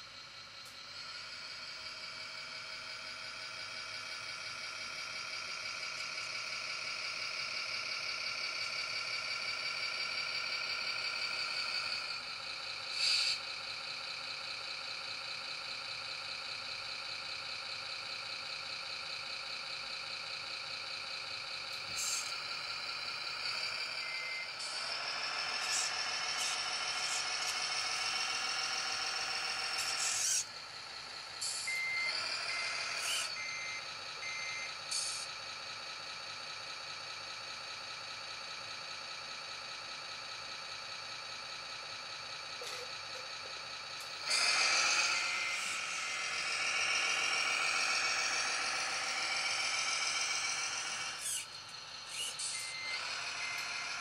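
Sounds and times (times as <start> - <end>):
simulated diesel engine on speaker: 0.0 - 54.0
air-brake hisses: 12.9 - 13.4.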